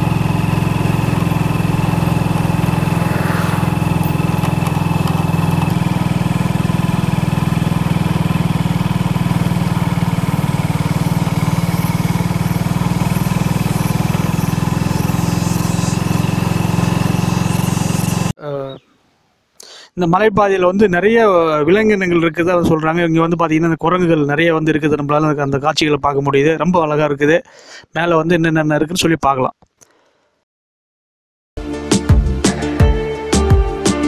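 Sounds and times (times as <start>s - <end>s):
motorcycle engine running: 0.0s - 18.4s.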